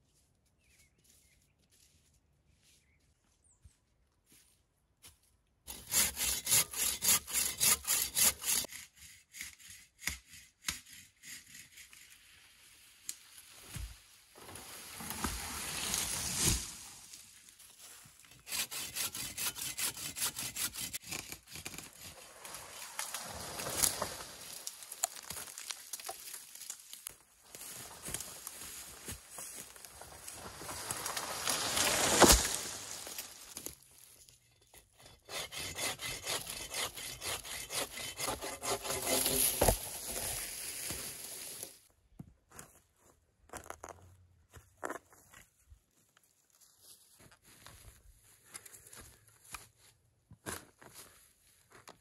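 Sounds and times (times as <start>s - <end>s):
hand saw cutting wood: 5.7s - 12.2s, 18.3s - 22.5s, 31.4s - 33.2s, 34.6s - 40.4s.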